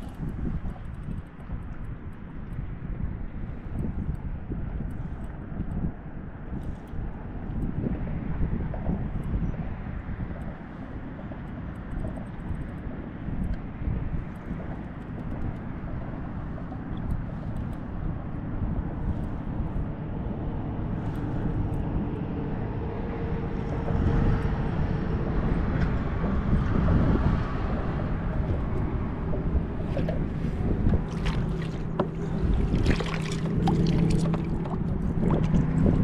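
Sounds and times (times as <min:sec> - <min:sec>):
wind buffeting microphone: 0:00.0 - 0:36.0
water lapping at kayak hull: 0:13.1 - 0:22.7, 0:27.1 - 0:36.0
fish thrashing and splashing: 0:29.7 - 0:36.0.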